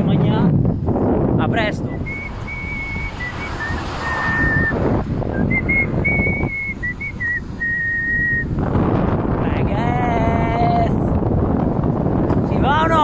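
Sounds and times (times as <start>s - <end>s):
wind noise on microphone: 0.0s - 13.0s
person whistling a tune: 1.9s - 8.5s.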